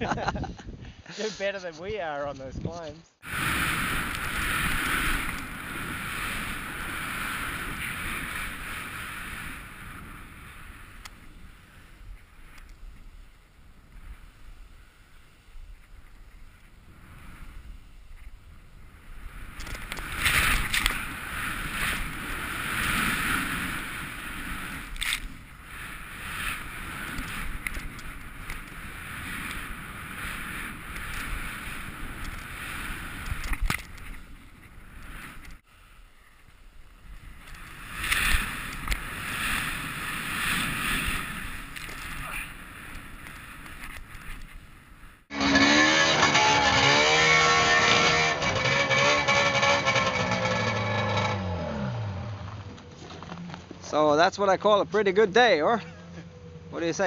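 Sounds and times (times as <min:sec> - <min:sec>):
wind on microphone: 0:00.0 - 0:35.6
snowboard hissing through powder: 0:03.2 - 0:11.0, 0:20.1 - 0:24.9.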